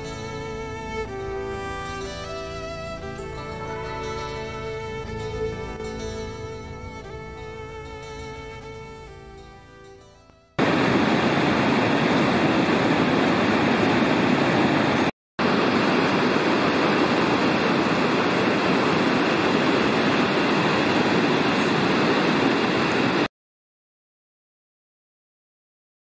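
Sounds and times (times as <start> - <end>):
river water rushing over weir: 10.6 - 23.3.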